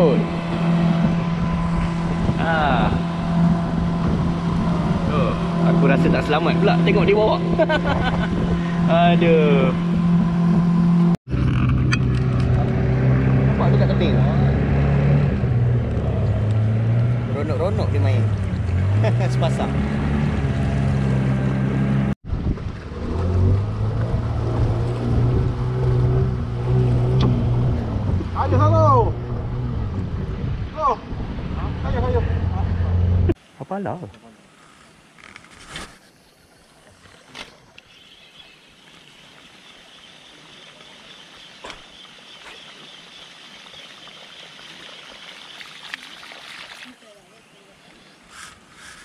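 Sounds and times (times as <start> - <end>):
water rushing along hull: 0.0 - 11.2, 12.2 - 35.3, 36.5 - 49.0
boat engine running: 0.0 - 33.4.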